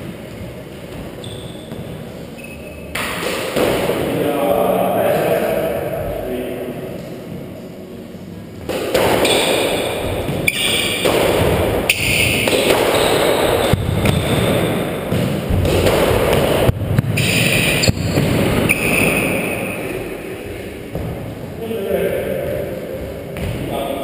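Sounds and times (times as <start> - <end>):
squash ball hits: 2.9 - 4.2, 8.6 - 20.0, 20.8 - 21.3, 23.3 - 23.7.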